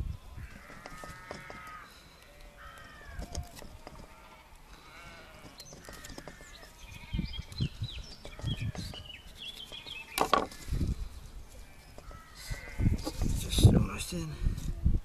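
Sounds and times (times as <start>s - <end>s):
birds chirping: 0.2s - 14.3s
dull knocks on wooden board: 0.6s - 1.7s, 5.4s - 6.6s, 10.2s - 10.6s.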